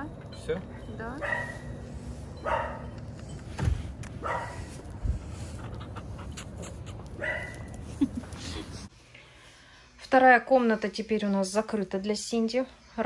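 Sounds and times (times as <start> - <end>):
dog barking: 1.2 - 1.8, 2.4 - 2.9, 4.2 - 4.7, 7.2 - 7.7.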